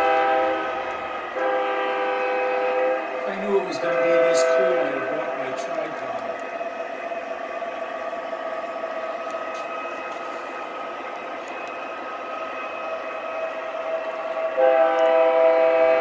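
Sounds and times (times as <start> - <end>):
train horn chord: 0.0 - 5.8, 14.5 - 16.0
model train humming: 0.0 - 16.0
faint track clicks: 5.6 - 6.6, 9.2 - 10.5, 11.1 - 11.9.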